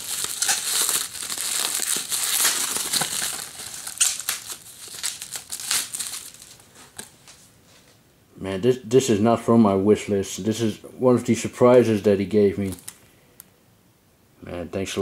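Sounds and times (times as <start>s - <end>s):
bubble wrap crinkling: 0.0s - 7.4s, 12.6s - 13.0s.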